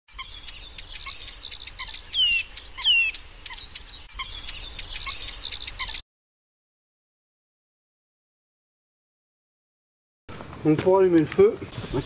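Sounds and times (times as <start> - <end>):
birds chirping and singing: 0.1 - 6.0, 11.6 - 12.0
down-slurred bird whistles: 0.2 - 6.0.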